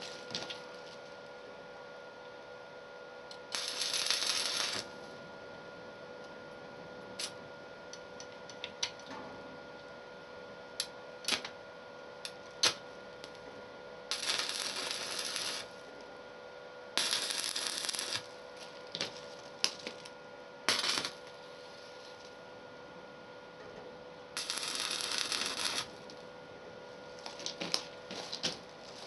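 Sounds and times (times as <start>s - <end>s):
welding arc crackling hiss: 0.0s - 1.2s, 3.3s - 5.1s, 7.2s - 7.4s, 10.8s - 11.5s, 12.2s - 13.4s, 14.1s - 16.1s, 17.0s - 22.4s, 24.4s - 26.2s, 27.1s - 29.0s
steady electrical hum: 0.0s - 29.0s
welding rod clicking on metal: 3.3s - 4.9s, 14.1s - 15.7s, 17.0s - 18.3s, 20.7s - 21.3s, 24.4s - 26.2s.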